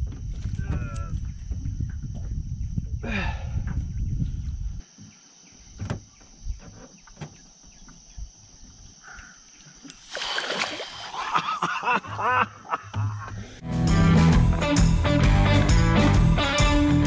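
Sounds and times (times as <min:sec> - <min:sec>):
fish thrashing water splashing: 0:09.9 - 0:11.5.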